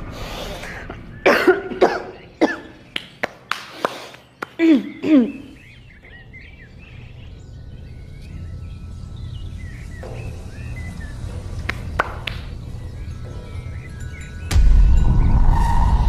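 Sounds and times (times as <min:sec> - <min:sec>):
birds chirping: 0:00.0 - 0:16.0
low rumbling drone: 0:06.1 - 0:16.0.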